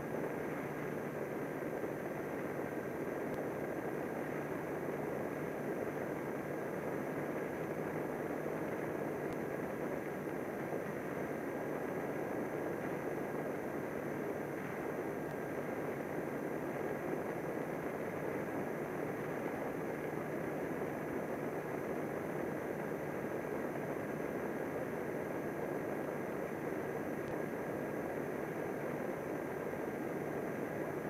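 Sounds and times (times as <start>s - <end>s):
faint high whine: 0.0s - 31.0s.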